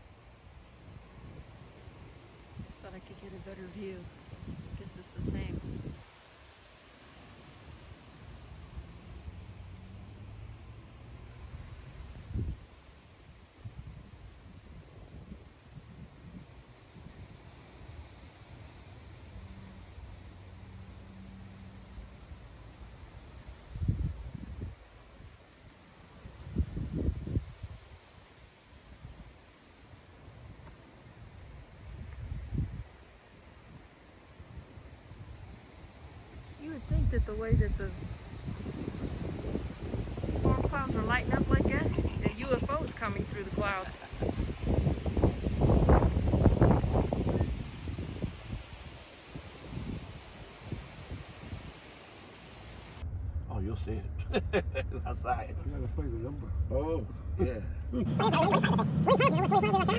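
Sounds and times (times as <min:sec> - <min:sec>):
crickets trilling: 0:00.0 - 0:53.1, 0:56.8 - 0:59.9
faint low rumble: 0:52.9 - 0:59.9.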